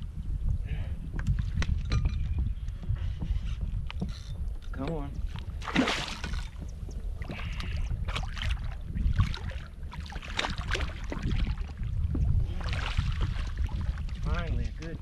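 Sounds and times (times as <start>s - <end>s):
steady low rumble: 0.0s - 15.0s
fish splashing in water: 5.6s - 6.6s.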